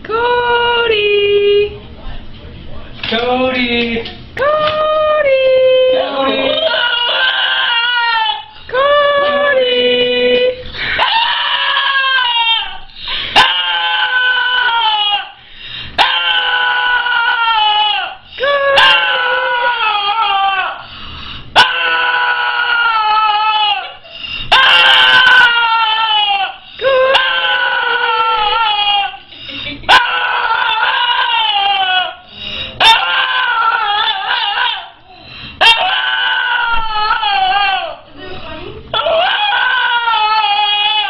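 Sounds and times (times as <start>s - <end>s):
small dog howling: 6.0s - 8.5s, 11.0s - 15.4s, 16.0s - 20.8s, 21.6s - 29.2s, 29.9s - 32.2s, 32.8s - 35.0s, 35.6s - 38.0s, 39.0s - 41.0s.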